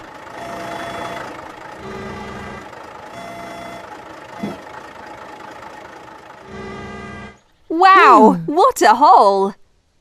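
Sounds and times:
cartoon crane engine running: 0:00.0 - 0:07.5
low hum: 0:00.0 - 0:08.5.

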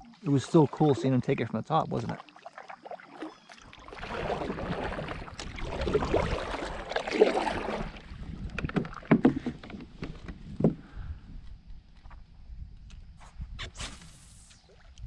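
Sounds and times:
paddle sloshing through water: 0:00.0 - 0:10.4.

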